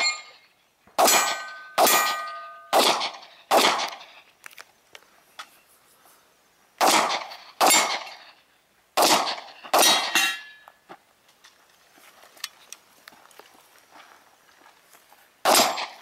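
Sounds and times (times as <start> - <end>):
metallic ring: 0.0 - 2.8, 9.9 - 10.7
gunshots: 1.0 - 4.1, 6.8 - 8.3, 9.0 - 10.3, 15.4 - 16.0.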